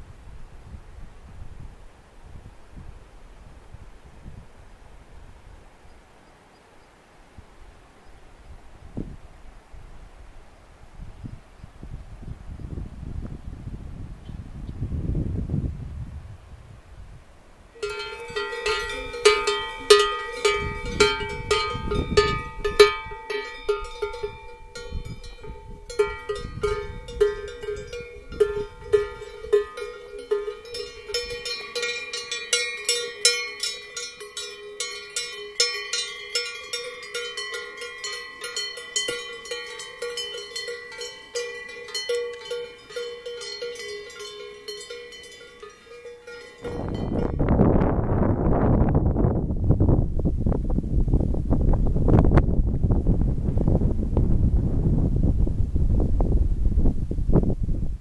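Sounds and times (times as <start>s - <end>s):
cowbells clanking: 17.8s - 47.6s.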